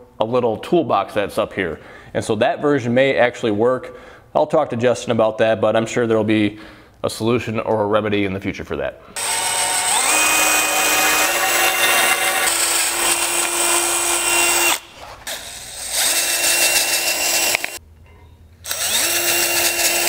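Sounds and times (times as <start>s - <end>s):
cordless drill boring through metal: 9.2s - 17.8s, 18.6s - 20.0s.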